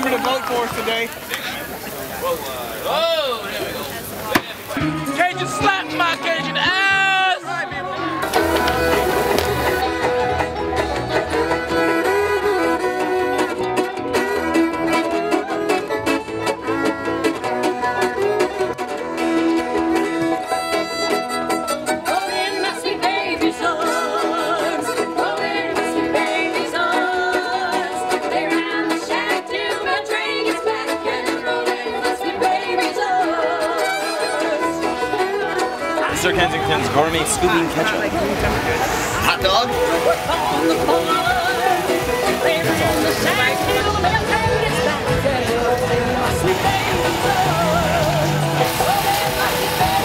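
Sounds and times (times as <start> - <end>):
guitar: 0.0 - 50.0
upright bass: 4.0 - 22.1, 34.4 - 50.0
banjo: 4.3 - 50.0
voices singing: 4.4 - 18.6, 21.9 - 50.0
fiddle: 4.7 - 23.4, 24.0 - 50.0.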